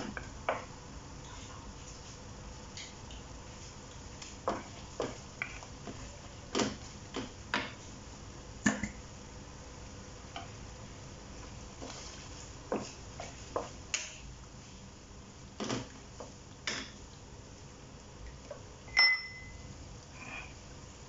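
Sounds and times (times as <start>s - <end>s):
wooden spatula scraping a wok: 11.7s - 13.8s.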